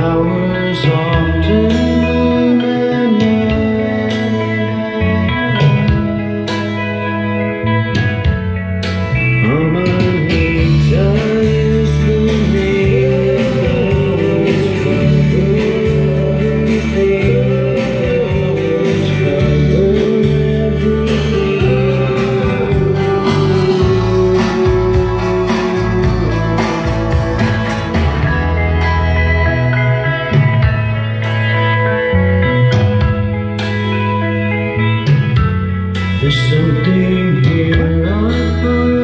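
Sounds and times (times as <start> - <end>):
person singing: 0.0 - 7.6, 9.3 - 35.2, 36.0 - 39.0
guitar accompaniment: 0.0 - 39.0.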